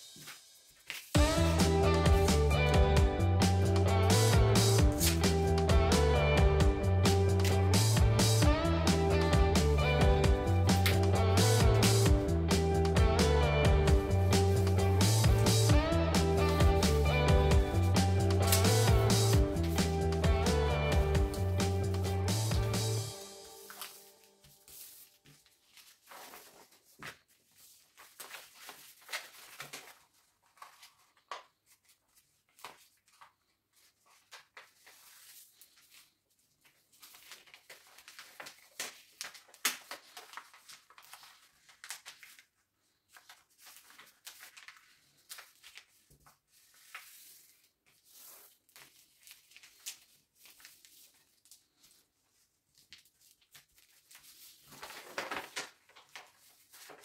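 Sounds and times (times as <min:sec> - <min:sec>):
paper rustling and crinkling: 0:00.1 - 0:01.2, 0:23.0 - 0:57.0
paper folds scraping: 0:04.1 - 0:05.4, 0:17.7 - 0:57.0.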